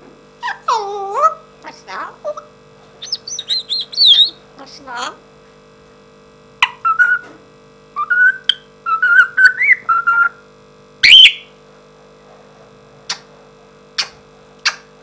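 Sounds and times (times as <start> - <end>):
parrot whistling: 3.0 - 4.4, 6.6 - 7.2, 8.0 - 10.4, 11.0 - 11.5.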